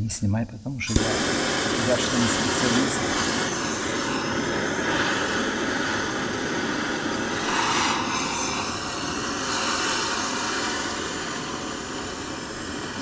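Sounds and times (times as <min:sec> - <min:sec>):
gas torch hissing roar: 0:00.8 - 0:13.0.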